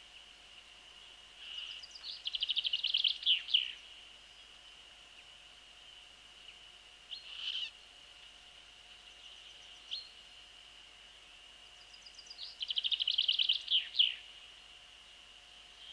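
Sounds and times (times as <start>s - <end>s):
songbird chirping and trilling: 1.0s - 7.8s, 8.9s - 10.3s, 11.0s - 14.4s.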